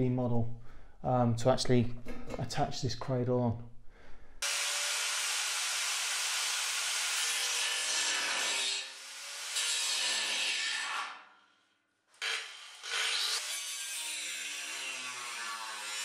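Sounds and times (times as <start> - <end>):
angle grinder grinding steel: 12.2 - 16.0.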